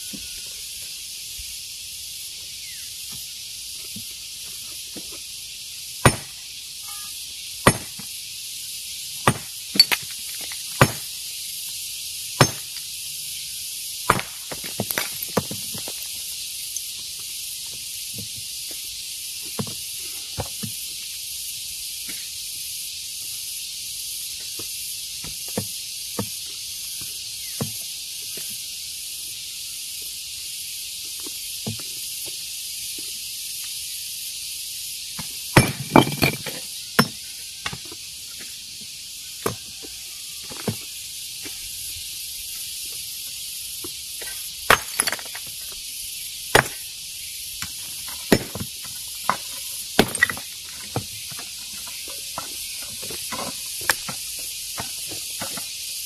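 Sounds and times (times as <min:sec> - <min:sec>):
steady high hiss: 0:00.0 - 0:56.0
hammer striking stone: 0:06.0 - 0:06.4, 0:07.6 - 0:08.0, 0:09.2 - 0:10.1, 0:10.8 - 0:11.1, 0:12.4 - 0:12.8, 0:14.1 - 0:15.6, 0:35.6 - 0:37.2, 0:44.7 - 0:45.4, 0:46.6 - 0:46.8, 0:48.3 - 0:48.6, 0:50.0 - 0:50.4.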